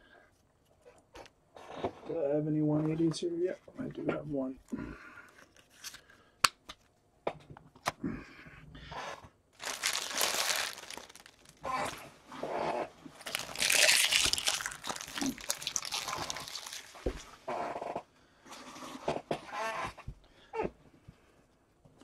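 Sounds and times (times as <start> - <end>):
plastic packaging crinkling: 9.6 - 12.0, 13.1 - 17.4.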